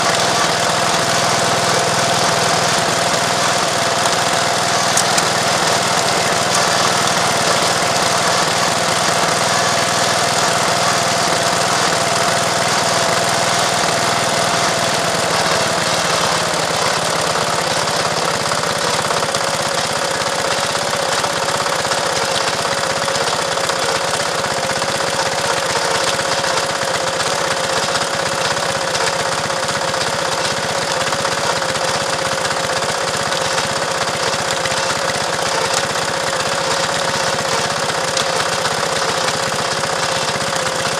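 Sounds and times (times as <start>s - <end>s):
small engine running: 0.0s - 40.9s.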